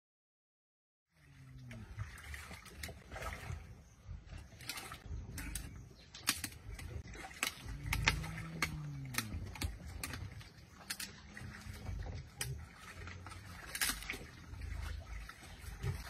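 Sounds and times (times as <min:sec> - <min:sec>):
bones cracking and crunching: 0:05.4 - 0:11.6, 0:13.3 - 0:14.3
hyena low call: 0:07.6 - 0:10.3.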